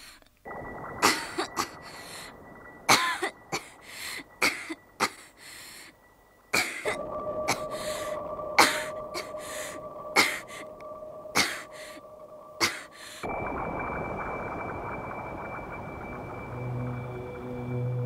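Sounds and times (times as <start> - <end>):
faint steady tone: 0.0 - 18.0
person coughing: 1.0 - 1.8, 4.4 - 5.3, 6.6 - 7.6, 10.2 - 10.6, 11.4 - 12.0, 12.6 - 13.0.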